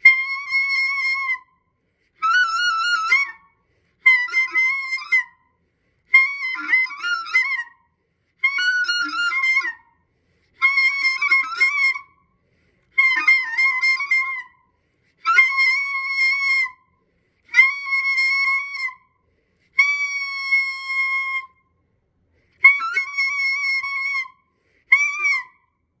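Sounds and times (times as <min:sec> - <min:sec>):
high clarinet phrases: 0:00.0 - 0:01.5, 0:04.0 - 0:05.4, 0:06.1 - 0:07.8, 0:08.4 - 0:09.9, 0:10.6 - 0:12.1, 0:13.0 - 0:14.6, 0:15.2 - 0:16.8, 0:17.5 - 0:19.0, 0:19.8 - 0:21.6, 0:22.6 - 0:25.6.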